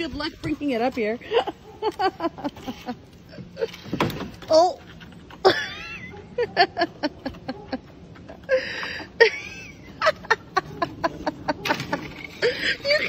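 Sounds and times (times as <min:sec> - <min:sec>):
woman laughing: 0:01.1 - 0:04.0, 0:05.4 - 0:13.0.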